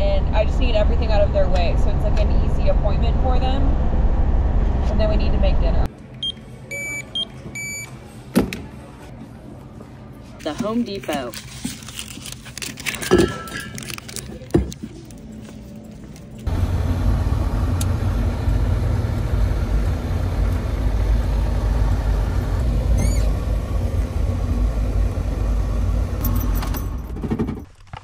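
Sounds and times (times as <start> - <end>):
engine idling: 16.5 - 27.1.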